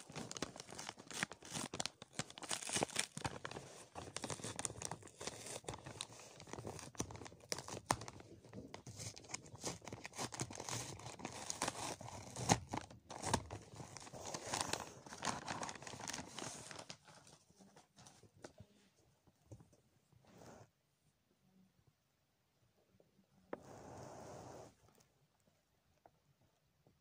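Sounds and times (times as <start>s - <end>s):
plastic mailing bag tearing and crinkling: 0.0s - 17.3s.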